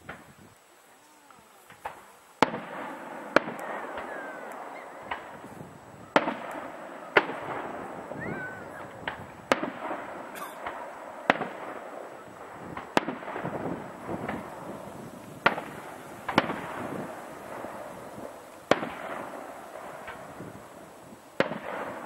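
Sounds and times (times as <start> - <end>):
fireworks bursting bangs: 0.0 - 22.0
fireworks crackle: 0.0 - 22.0.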